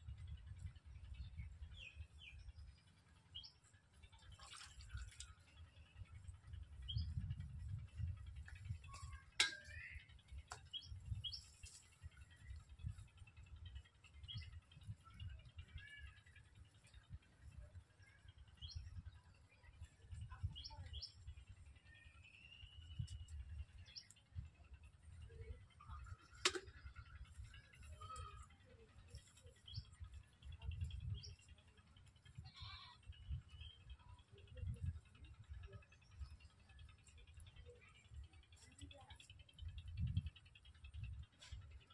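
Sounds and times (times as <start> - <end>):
low rumble of wind: 0.0 - 41.9.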